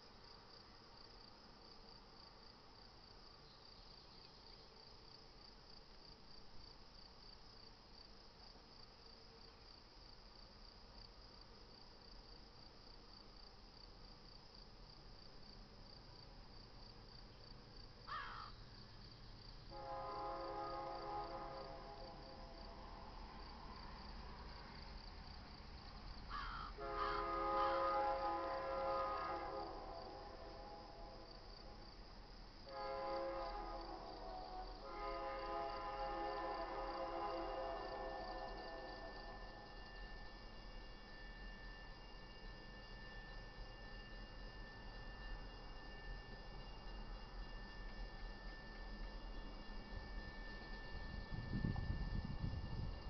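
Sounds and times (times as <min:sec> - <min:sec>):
insects chirping: 0:00.0 - 0:53.0
locomotive air horn: 0:19.7 - 0:23.1, 0:26.8 - 0:31.5, 0:32.6 - 0:40.4.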